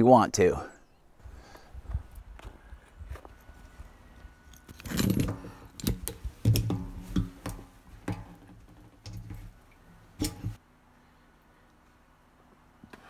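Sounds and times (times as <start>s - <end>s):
metal chain clinking: 4.7s - 5.9s.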